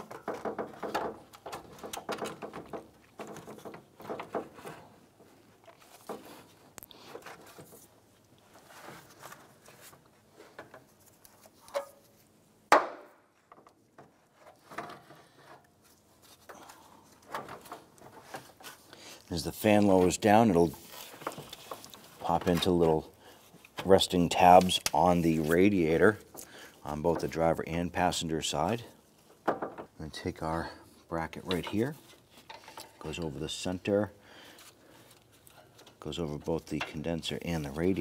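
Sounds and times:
plastic shroud knocking and scraping: 0.0s - 6.5s.

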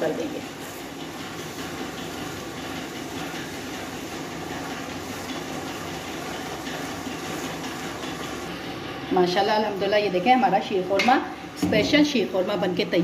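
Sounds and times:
spatula stirring and scraping: 0.0s - 9.0s
pudding simmering in a pan: 0.0s - 9.1s.

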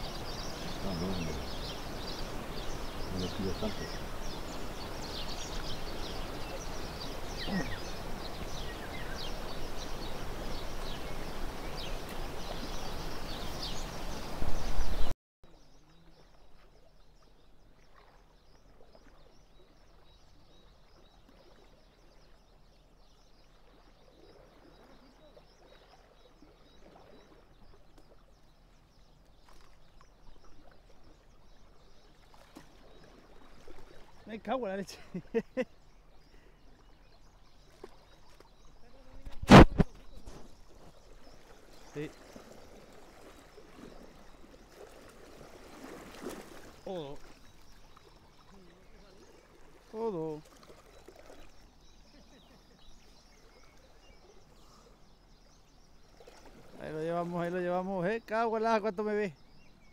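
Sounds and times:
river water rushing: 0.0s - 15.1s, 41.4s - 51.4s
small birds chirping: 0.0s - 59.9s.

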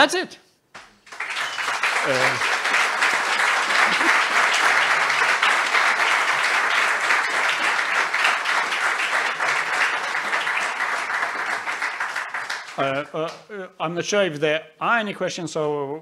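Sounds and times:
audience applauding: 0.8s - 13.4s.

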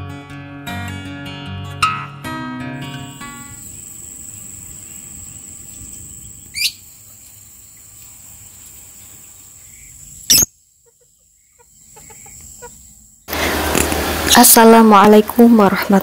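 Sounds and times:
insects trilling: 3.0s - 13.3s
bird rising call: 6.4s - 6.8s, 9.7s - 10.5s
lovebird shriek: 6.5s - 6.8s, 10.3s - 10.5s.

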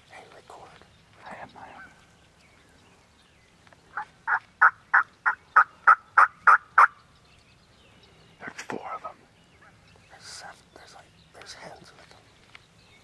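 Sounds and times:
turkey calling: 3.9s - 7.1s.

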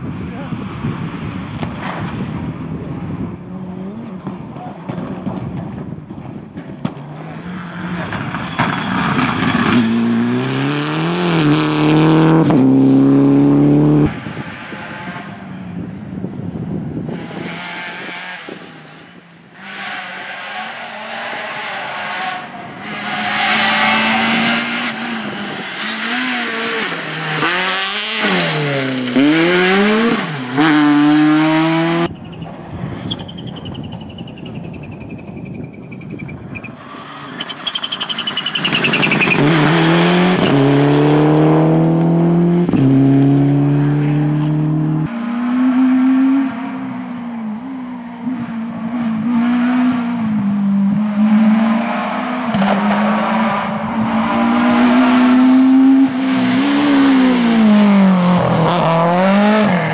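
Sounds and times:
rally car engine revving: 1.5s - 15.8s, 16.9s - 32.2s, 36.9s - 59.9s
rally car accelerating through gears: 6.8s - 15.5s, 17.0s - 32.1s, 37.0s - 59.9s.

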